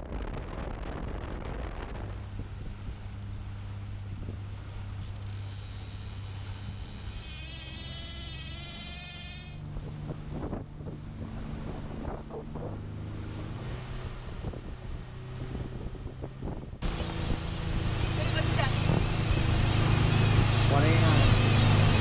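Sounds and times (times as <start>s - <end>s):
wind buffeting microphone: 0.0s - 7.9s, 8.6s - 22.0s
water slapping along hull: 0.0s - 22.0s
outboard motor humming: 1.7s - 22.0s
high wavering whine: 1.9s - 13.3s, 16.8s - 22.0s.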